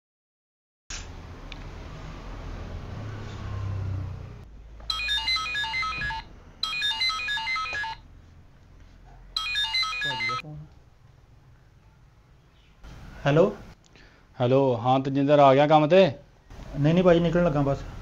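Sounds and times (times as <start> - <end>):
electronic phone ringtone: 4.9 - 8.1, 9.4 - 10.4.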